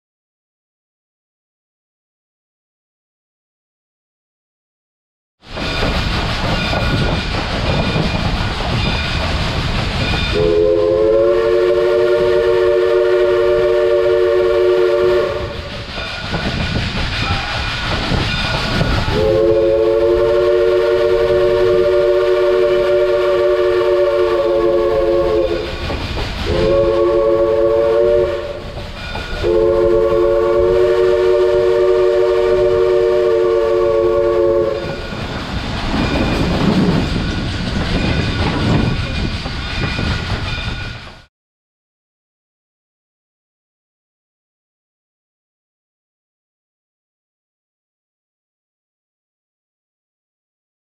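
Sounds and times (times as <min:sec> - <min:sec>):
moving train running noise: 0:05.4 - 0:41.3
steam locomotive chime whistle: 0:10.1 - 0:16.4, 0:17.1 - 0:35.3.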